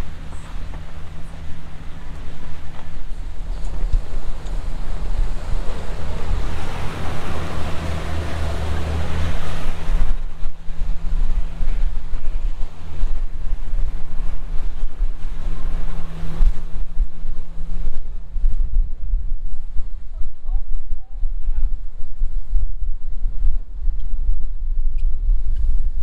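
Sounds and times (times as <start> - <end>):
water rushing along boat hull: 0.0 - 20.1
low engine hum: 0.0 - 26.0
wind buffeting microphone: 0.0 - 26.0.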